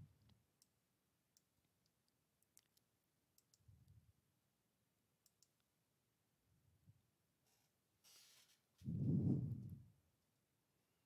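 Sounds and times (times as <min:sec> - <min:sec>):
computer mouse clicks: 0:01.4 - 0:03.7, 0:05.2 - 0:05.7.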